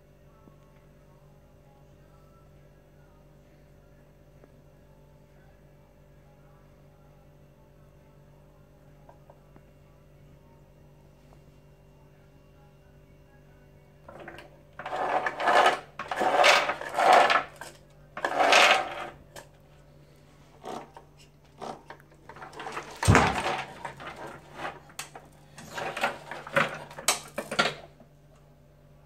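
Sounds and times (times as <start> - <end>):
faint steady hum: 0.0 - 29.0
cart frame and wheels rattling: 22.3 - 25.0, 25.6 - 27.6.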